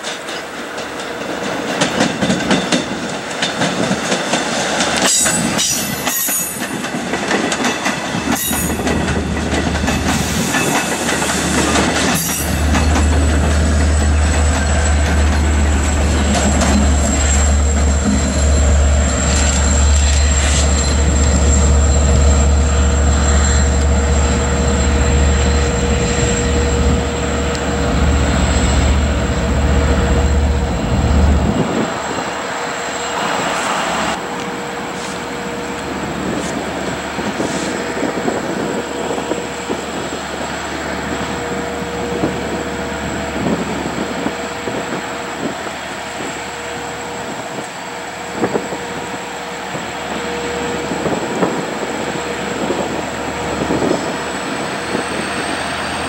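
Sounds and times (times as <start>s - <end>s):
train wheels clattering: 0.0s - 30.9s
high-pitched whine: 12.9s - 37.0s.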